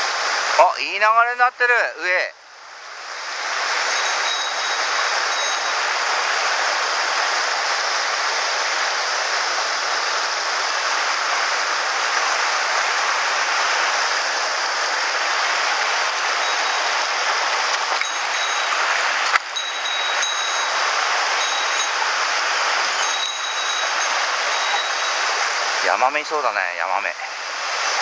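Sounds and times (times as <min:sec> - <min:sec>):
stream rushing over rocks: 0:00.0 - 0:00.8, 0:02.5 - 0:28.0.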